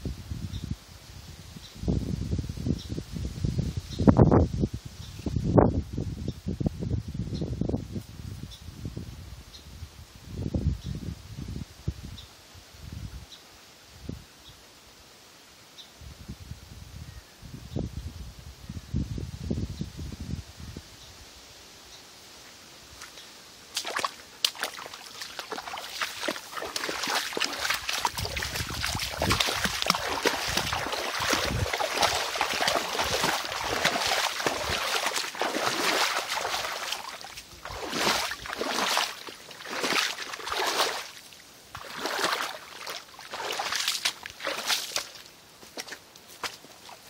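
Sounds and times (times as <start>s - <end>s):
splashing through shallow water: 22.9s - 47.0s.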